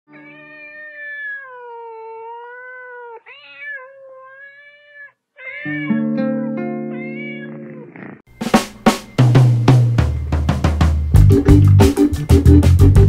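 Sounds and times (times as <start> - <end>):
cat meowing: 0.1 - 8.2
jazz backing track: 8.5 - 13.0.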